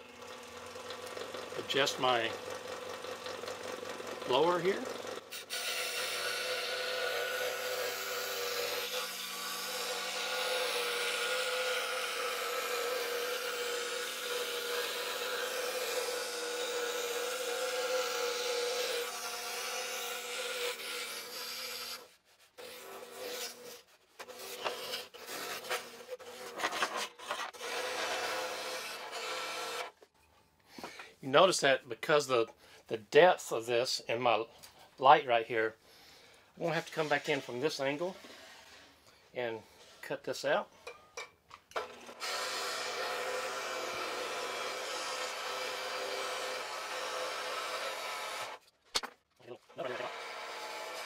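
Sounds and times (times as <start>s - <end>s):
scroll saw cutting plywood: 4.2s - 30.0s, 41.8s - 48.7s, 49.8s - 51.0s.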